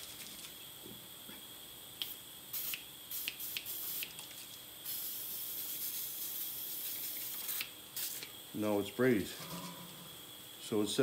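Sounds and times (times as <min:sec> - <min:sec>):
aerosol spray can hissing: 0:02.5 - 0:04.1, 0:04.9 - 0:08.3.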